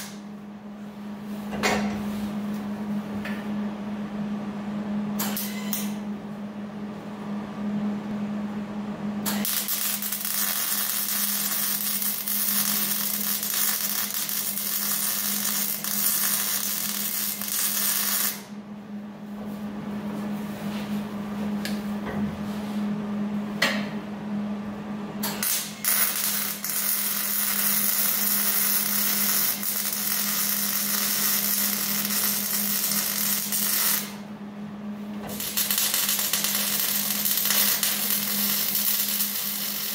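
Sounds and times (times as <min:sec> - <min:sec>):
arc welding crackling: 0:00.0 - 0:00.2, 0:09.3 - 0:18.6, 0:25.4 - 0:34.2, 0:35.3 - 0:39.9
steady low hum: 0:00.0 - 0:39.9.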